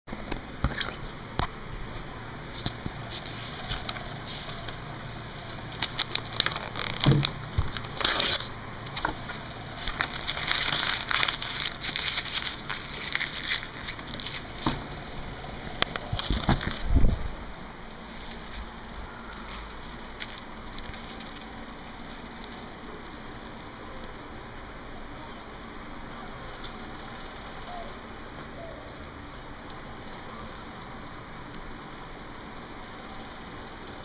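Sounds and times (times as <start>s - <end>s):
paper crumpling and rustling: 2.0s - 22.7s.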